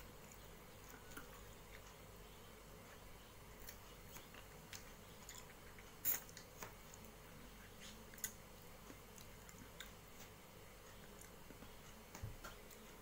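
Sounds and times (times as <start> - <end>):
man chewing food: 0.0 - 13.0.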